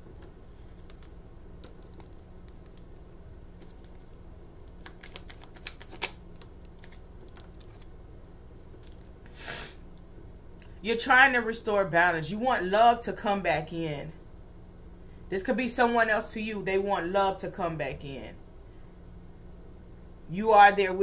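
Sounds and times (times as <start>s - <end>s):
low steady hum: 0.0s - 21.0s
cards clicking and tapping: 0.2s - 2.9s, 3.6s - 7.8s.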